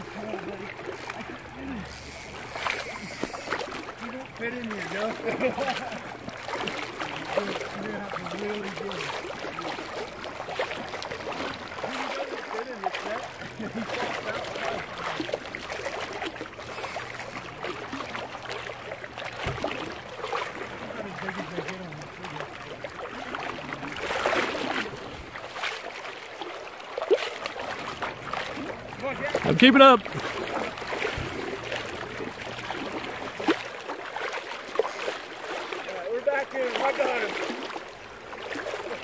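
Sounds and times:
river water splashing: 0:00.0 - 0:39.0
man calling out: 0:29.0 - 0:30.1.

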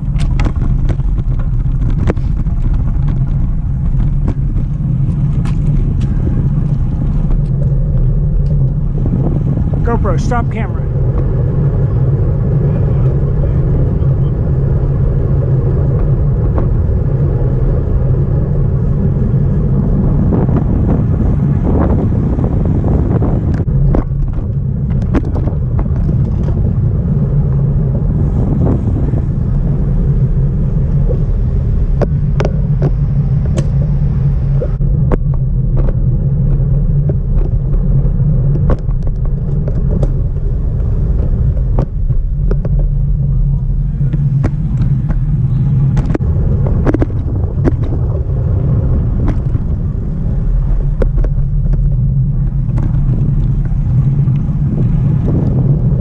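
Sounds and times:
scattered clicks and knocks: 0:00.0 - 0:06.1
wind buffeting microphone: 0:00.0 - 0:56.0.

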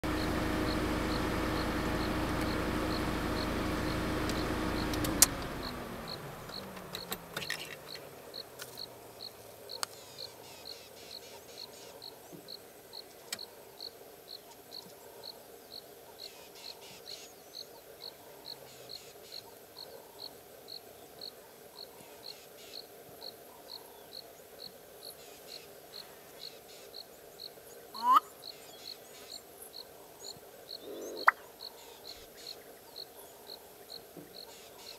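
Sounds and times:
engine hum winding down: 0:00.0 - 0:08.2
insect chirping: 0:05.6 - 0:34.9.

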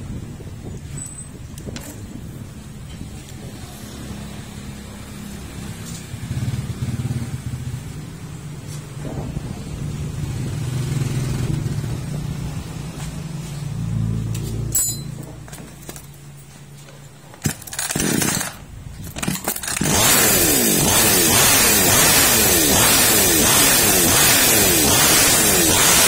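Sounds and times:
rattle of clicks: 0:17.4 - 0:19.9.

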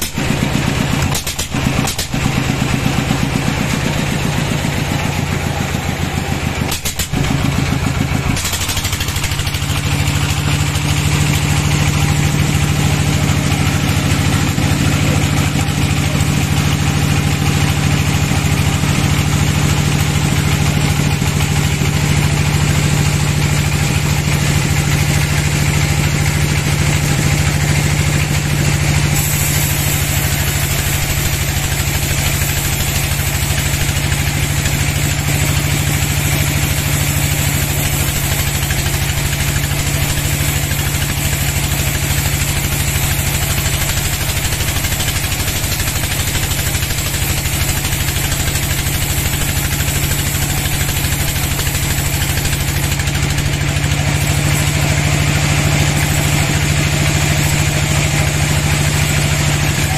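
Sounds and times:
saw blade cutting log: 0:00.0 - 0:03.8, 0:05.8 - 0:16.9, 0:27.1 - 0:59.9
band sawmill humming: 0:02.2 - 0:59.9.

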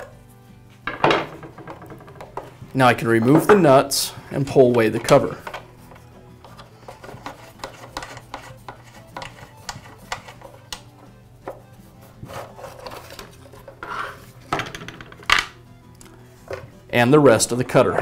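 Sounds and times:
metal cover clattering on bench: 0:00.9 - 0:02.5.

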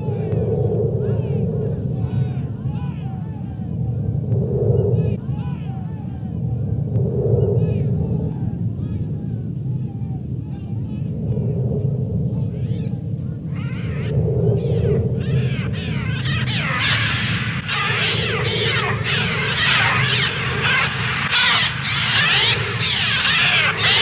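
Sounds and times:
steady low rumble: 0:00.0 - 0:24.0
screeching bird cries: 0:12.6 - 0:24.0.

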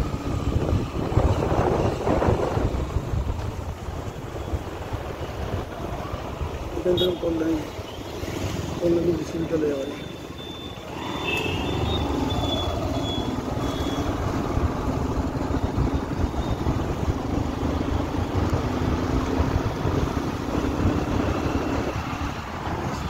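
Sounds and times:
wind buffeting microphone: 0:00.0 - 0:06.6.

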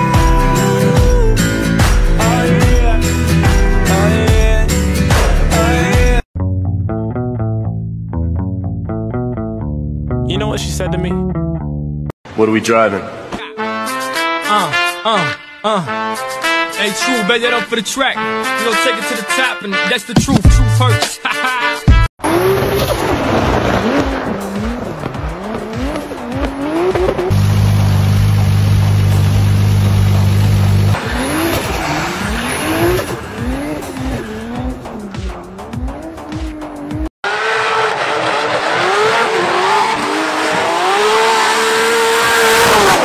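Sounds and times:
car engines revving: 0:22.2 - 0:43.0.

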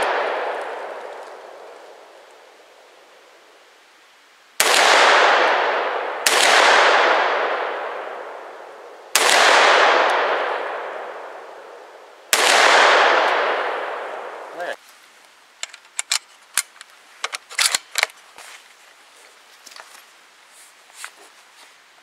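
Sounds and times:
pistol shots echoing: 0:04.6 - 0:11.5, 0:12.3 - 0:14.5.

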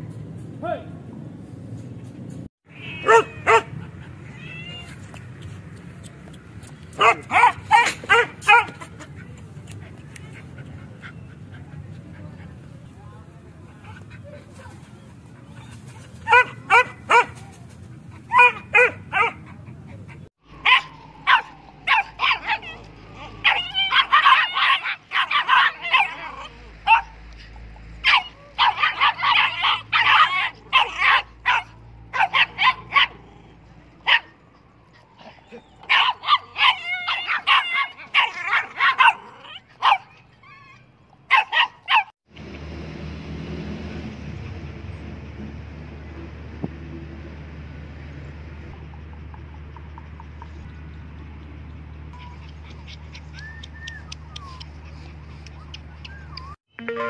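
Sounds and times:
dogs barking: 0:03.0 - 0:04.2, 0:06.9 - 0:09.3, 0:16.2 - 0:17.5, 0:18.1 - 0:33.4, 0:34.0 - 0:40.7, 0:41.3 - 0:42.1.

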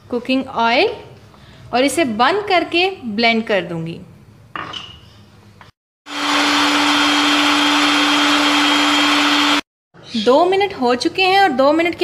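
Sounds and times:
blender motor humming: 0:06.1 - 0:09.7.

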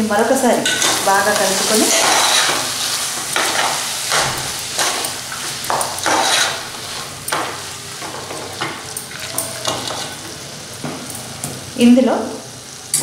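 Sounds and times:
frying sizzle: 0:00.0 - 0:13.0
spoon scraping metal pot: 0:01.9 - 0:02.6, 0:05.7 - 0:06.6.

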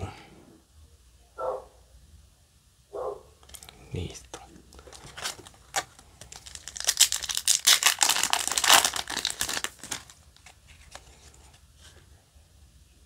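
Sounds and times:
cards rustling: 0:03.4 - 0:12.1
foil wrapper crinkling and tearing: 0:04.8 - 0:11.2.

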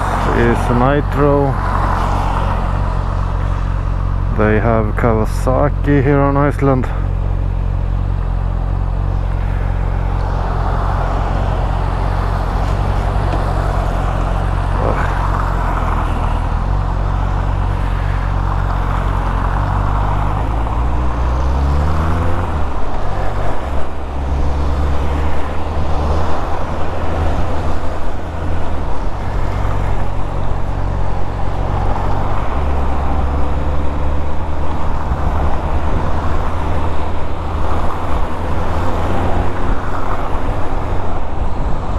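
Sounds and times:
wind noise: 0:34.9 - 0:41.9.

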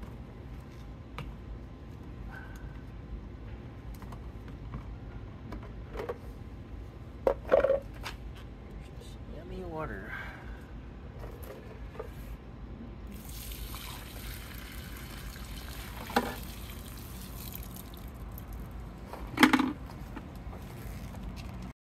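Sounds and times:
water pouring onto gravel: 0:13.1 - 0:18.8
plastic tank clattering: 0:19.2 - 0:19.8.

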